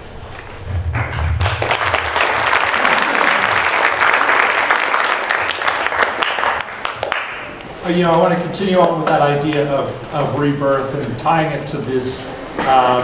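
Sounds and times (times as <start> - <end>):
audience applauding: 0.8 - 7.8.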